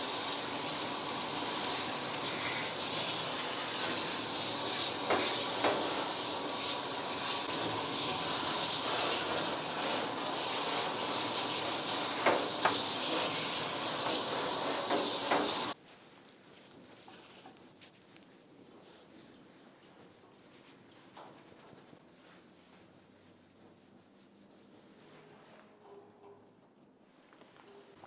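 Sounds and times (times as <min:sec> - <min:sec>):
pet dryer blowing air: 0:00.0 - 0:15.8.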